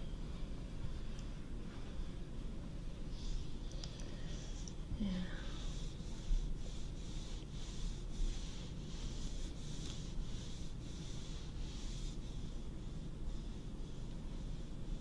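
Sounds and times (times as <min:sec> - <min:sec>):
hands rubbing over fabric: 0:05.5 - 0:15.0.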